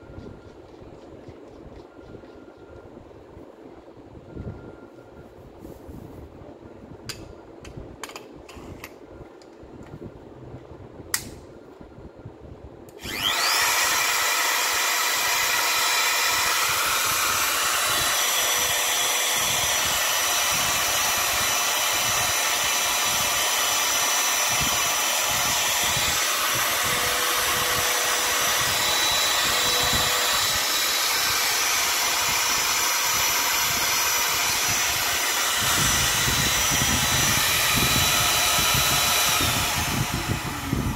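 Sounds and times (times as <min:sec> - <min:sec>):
trimmer motor whining: 0:13.0 - 0:40.9.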